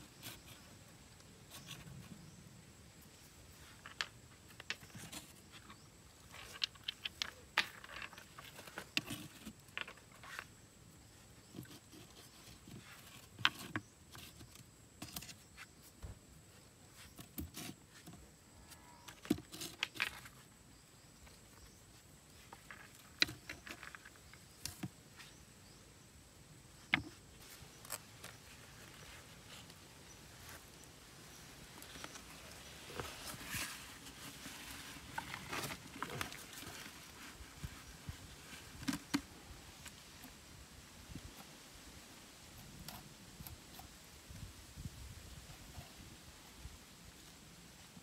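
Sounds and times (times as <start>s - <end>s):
stones clacking together: 3.7s - 10.6s, 22.4s - 25.0s
stones scraping on floor: 3.7s - 10.6s.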